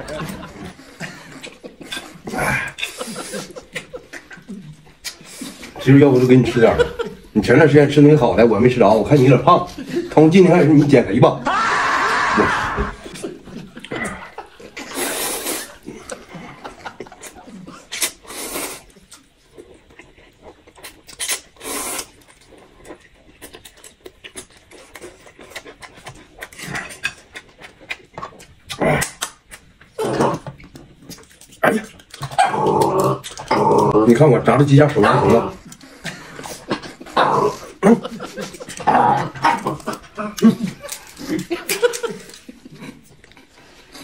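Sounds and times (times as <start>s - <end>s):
chewing and mouth noises: 0.1s - 5.8s, 13.1s - 34.0s, 34.8s - 44.0s
noodles slurped: 17.8s - 27.4s.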